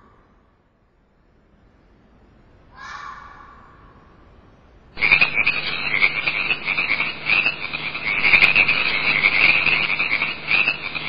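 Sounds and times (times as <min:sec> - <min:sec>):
frogs croaking: 0:02.8 - 0:04.2, 0:05.0 - 0:11.0.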